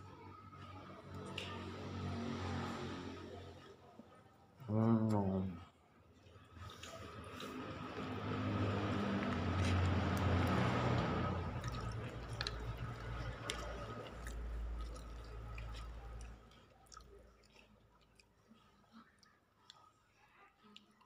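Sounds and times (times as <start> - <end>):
fingers squishing food: 6.6 - 21.0.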